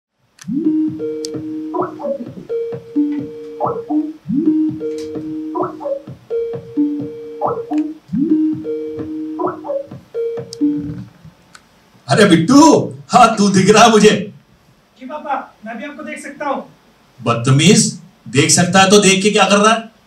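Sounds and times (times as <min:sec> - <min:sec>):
electronic ringtone melody: 0:00.5 - 0:11.1.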